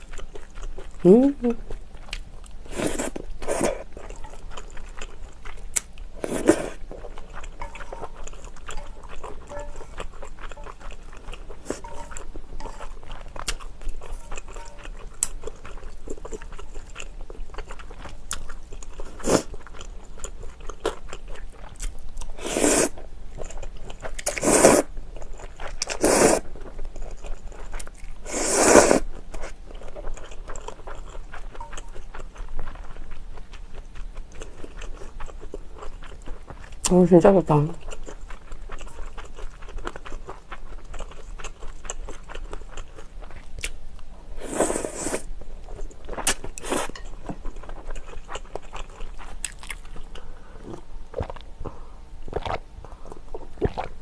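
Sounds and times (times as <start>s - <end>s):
wet chewing: 0.0s - 54.0s
loud slurps of noodles: 22.4s - 22.9s, 24.4s - 24.9s, 26.0s - 26.4s, 28.3s - 29.0s, 44.4s - 45.3s.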